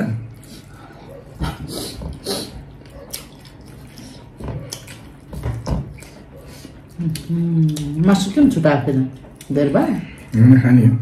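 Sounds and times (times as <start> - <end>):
steady low hum: 0.0 - 11.0
wet eating sounds: 0.0 - 11.0.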